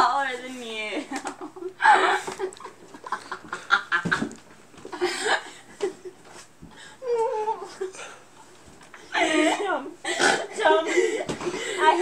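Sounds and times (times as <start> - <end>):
young women laughing: 9.0 - 12.0.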